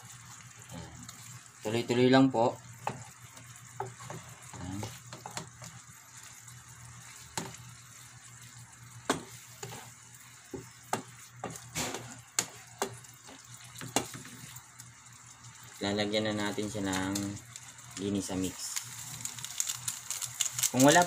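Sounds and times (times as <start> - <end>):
faint steady sizzle: 0.0 - 21.0
spatula knocking against pan: 9.0 - 9.3, 10.5 - 11.6.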